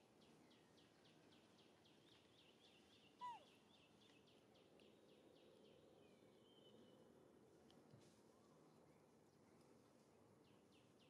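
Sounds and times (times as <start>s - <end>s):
faint bird calling: 3.2s - 3.5s.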